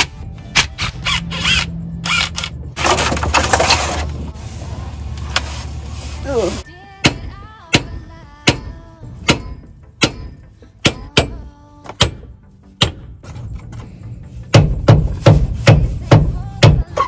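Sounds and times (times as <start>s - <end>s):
hammer striking steel: 7.0s - 13.2s.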